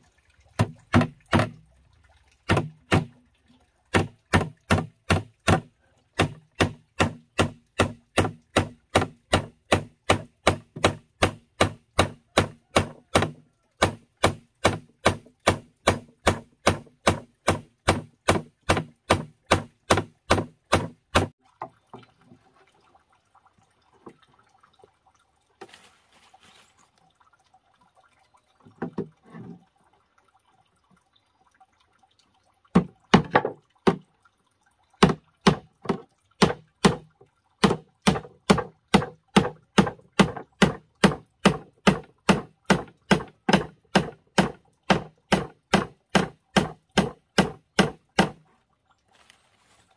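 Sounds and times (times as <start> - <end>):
hammer striking nails into wood: 6.2 - 21.3, 35.0 - 48.4.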